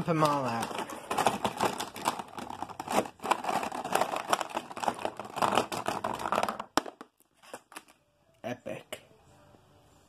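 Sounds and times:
plastic toys clattering on table: 0:00.2 - 0:07.1.

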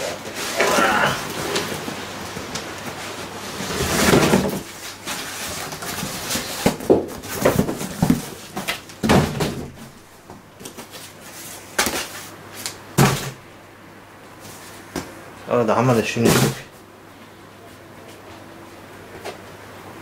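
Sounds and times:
cardboard rustling: 0:00.0 - 0:10.0
cardboard flaps thumping: 0:03.8 - 0:11.0.

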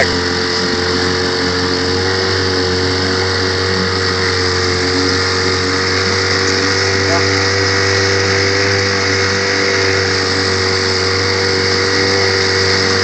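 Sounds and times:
outboard motor running: 0:00.0 - 0:13.0
water noise from wake: 0:00.0 - 0:13.0.

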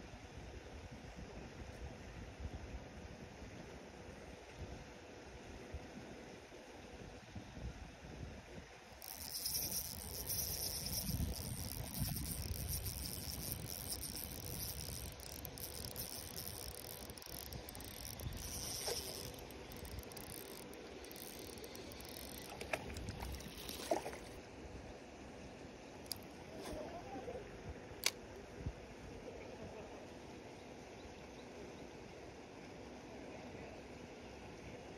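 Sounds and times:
wind on microphone: 0:07.3 - 0:20.6
sharp clicks: 0:09.0 - 0:24.2
fishing reel whirring: 0:09.0 - 0:24.4.

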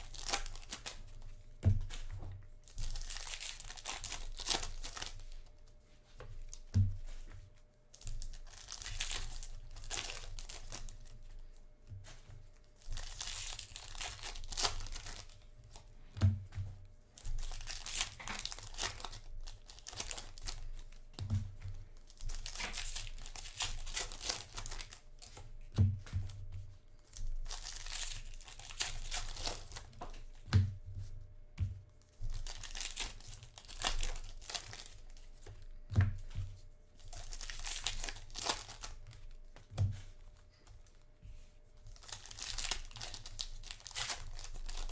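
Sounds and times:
foil wrappers crinkling and tearing: 0:00.0 - 0:05.5, 0:07.9 - 0:11.2, 0:12.6 - 0:15.9, 0:17.2 - 0:21.2, 0:22.0 - 0:25.4, 0:27.0 - 0:30.4, 0:32.1 - 0:35.9, 0:37.0 - 0:40.2, 0:41.9 - 0:44.9.

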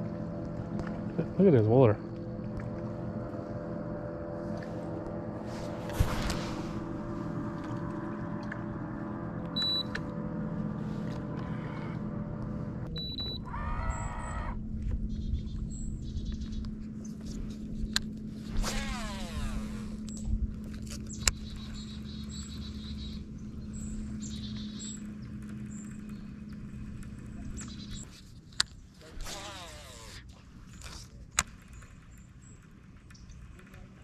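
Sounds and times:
whir sweeping in pitch: 0:00.0 - 0:20.3, 0:29.1 - 0:30.2
electric trolling motor humming: 0:00.0 - 0:34.0.

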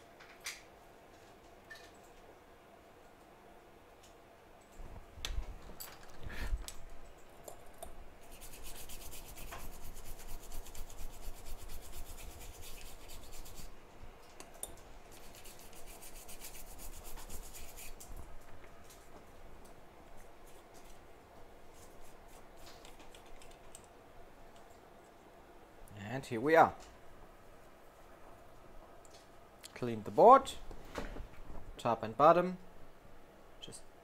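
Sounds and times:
swab scrubbing circuit board: 0:08.2 - 0:13.7.

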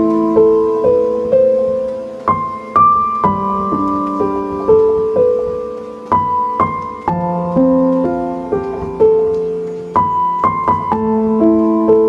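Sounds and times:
slow sad piano music: 0:00.0 - 0:12.0.

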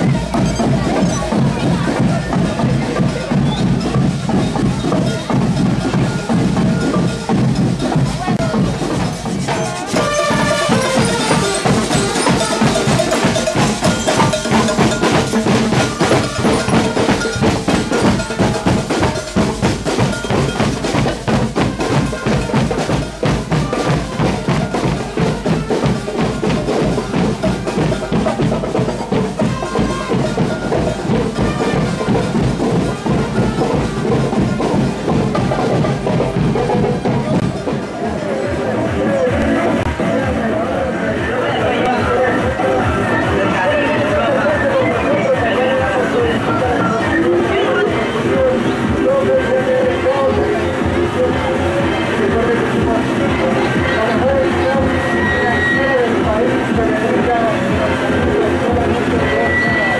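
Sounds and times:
marching drums beating: 0:00.0 - 0:40.6, 0:41.6 - 0:59.9
ringing pitched melody: 0:08.4 - 0:21.2.

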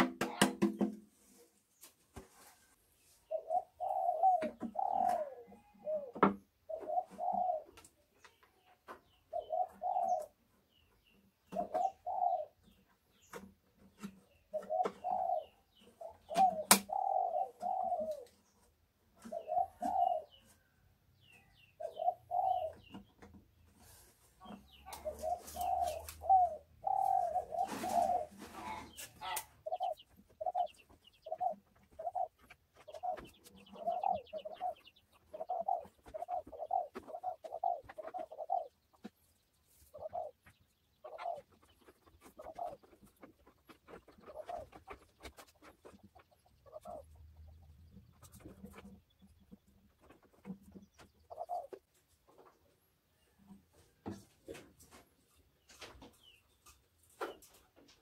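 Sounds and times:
dove cooing: 0:03.2 - 0:07.9, 0:08.5 - 0:10.4, 0:11.4 - 0:12.8, 0:14.0 - 0:18.6, 0:19.2 - 0:23.2, 0:23.8 - 0:52.5.

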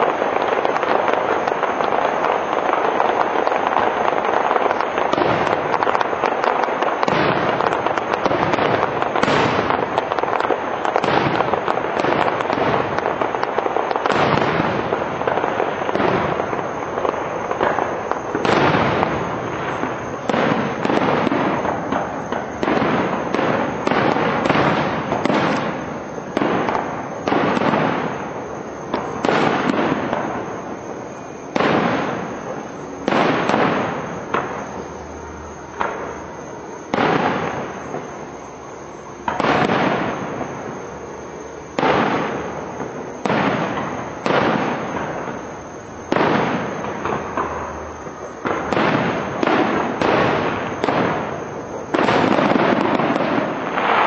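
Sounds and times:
firework shells bursting: 0:00.0 - 0:34.8.

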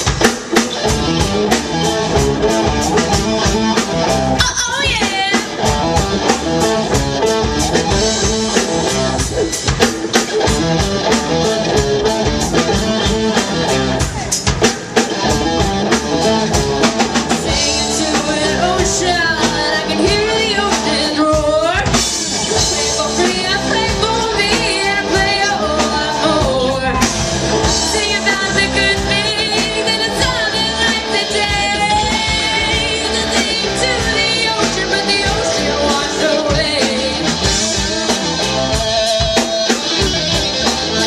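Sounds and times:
bass guitar: 0:00.0 - 0:41.0
drum kit: 0:00.0 - 0:41.0
electric guitars: 0:00.0 - 0:41.0
woman singing: 0:04.4 - 0:05.6, 0:17.4 - 0:22.0, 0:22.6 - 0:39.4.

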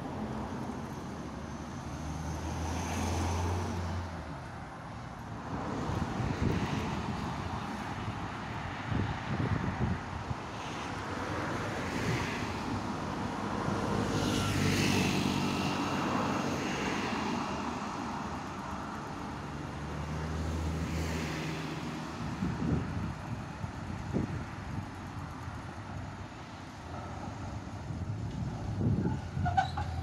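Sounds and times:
cars driving past: 0:00.0 - 0:30.0
wind buffeting microphone: 0:05.5 - 0:13.5, 0:22.1 - 0:26.2, 0:26.9 - 0:30.0.

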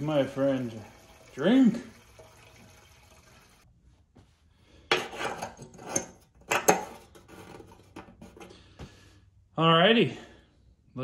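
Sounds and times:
fuel pouring into tank: 0:00.0 - 0:03.7.

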